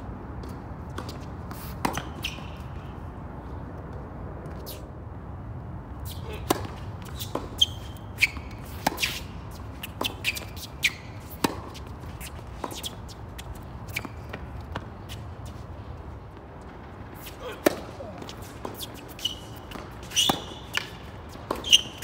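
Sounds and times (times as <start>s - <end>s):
tennis ball bouncing: 0.4s - 2.7s, 6.2s - 15.7s, 17.2s - 22.0s
racquets striking tennis ball: 0.4s - 2.9s, 6.1s - 16.4s, 17.1s - 22.0s
tennis shoes squeaking on court: 0.4s - 3.0s, 4.4s - 4.9s, 6.0s - 16.0s, 17.1s - 22.0s.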